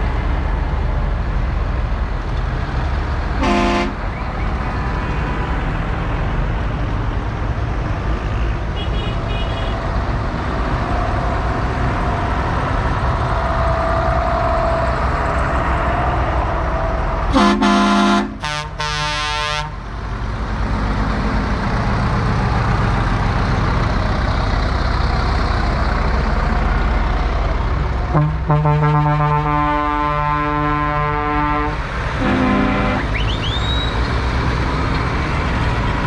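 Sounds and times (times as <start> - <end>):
tractor engines running: 0.0 - 36.0
vehicle horn blasts: 3.4 - 4.0, 17.3 - 19.7, 28.2 - 33.2.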